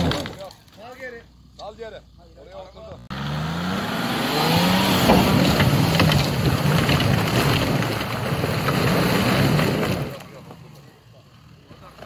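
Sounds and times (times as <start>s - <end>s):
engine revving hard: 3.0s - 6.3s.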